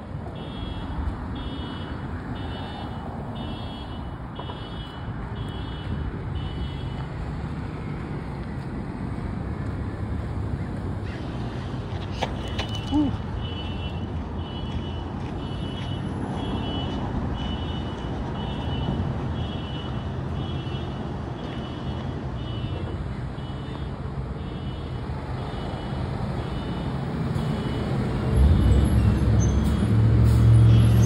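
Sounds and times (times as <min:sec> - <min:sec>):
heavy vehicle rumble: 0:00.0 - 0:31.0
road traffic rumble: 0:00.0 - 0:31.0.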